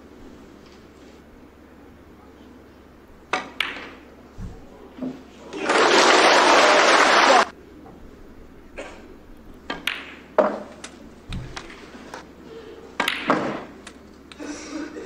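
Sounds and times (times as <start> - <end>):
snooker balls clicking: 3.3 - 4.1, 9.5 - 12.2, 13.0 - 14.4.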